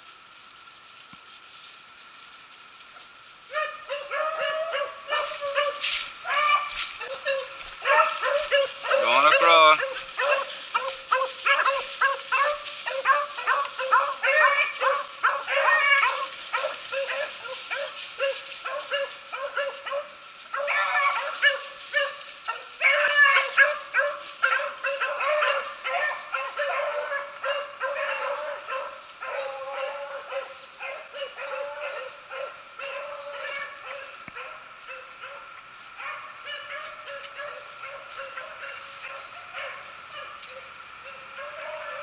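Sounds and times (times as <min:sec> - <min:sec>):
dogs baying and yelping: 0:03.5 - 0:42.0.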